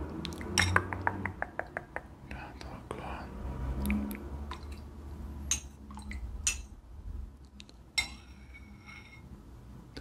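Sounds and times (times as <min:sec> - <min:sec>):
spoon clinking in a bowl: 0:05.5 - 0:06.8, 0:08.0 - 0:09.2.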